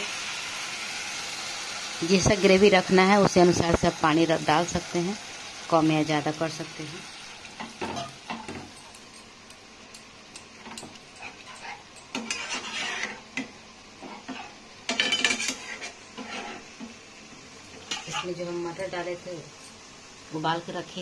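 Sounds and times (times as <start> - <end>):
spatula scraping metal pan: 11.2 - 16.9, 17.8 - 18.4.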